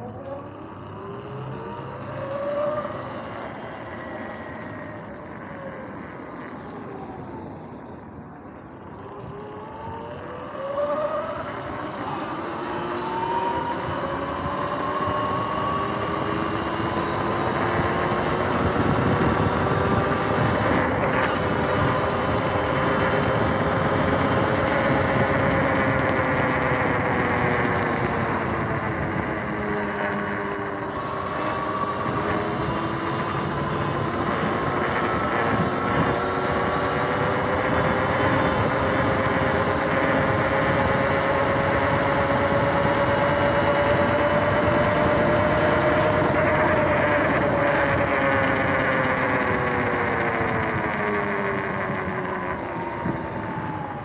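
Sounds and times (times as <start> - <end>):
electric motor and chain whining: 9.0 - 54.0.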